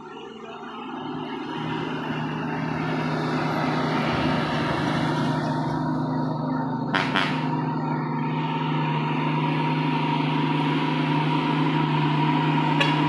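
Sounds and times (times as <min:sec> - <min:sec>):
diesel truck passing by: 0:00.0 - 0:13.0.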